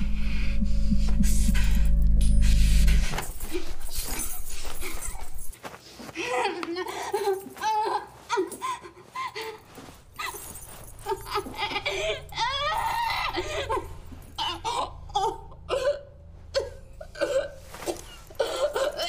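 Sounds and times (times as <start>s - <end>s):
low hum: 0.0s - 5.5s
person laughing: 11.0s - 15.4s.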